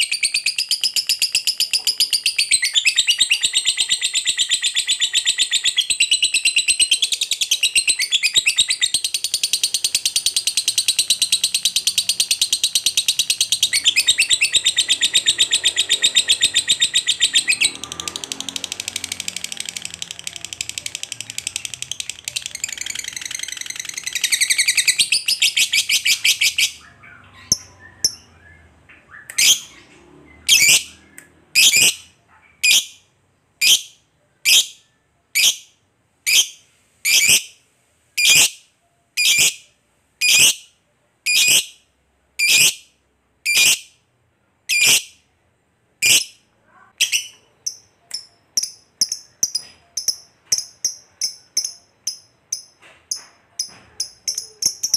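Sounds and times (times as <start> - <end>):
lovebird chattering trill: 0.0 - 18.1, 18.8 - 28.4, 43.5 - 43.9, 44.7 - 45.2, 47.0 - 54.9
lovebird chirping: 0.0 - 37.6, 38.2 - 44.0, 44.7 - 45.3, 46.0 - 54.9.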